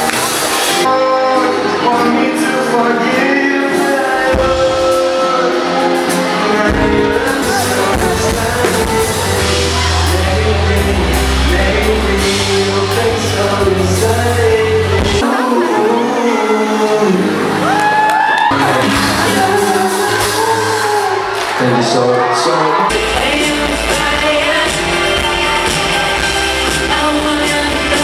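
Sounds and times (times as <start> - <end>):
drums: 0.0 - 15.8, 16.4 - 21.6, 22.8 - 28.0
guitar: 0.0 - 28.0
man singing: 0.8 - 17.8, 18.5 - 28.0
heavy bass line: 4.3 - 15.6, 22.9 - 28.0.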